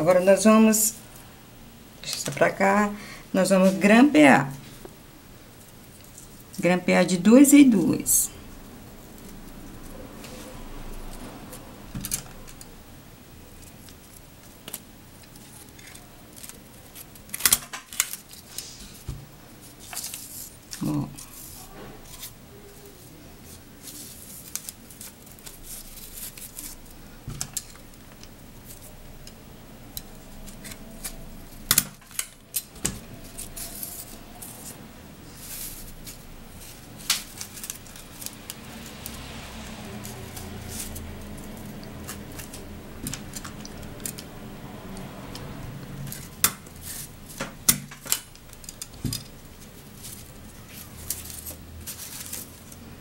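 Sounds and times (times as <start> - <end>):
paper rustling: 13.6 - 28.0, 30.3 - 44.3, 46.0 - 53.0.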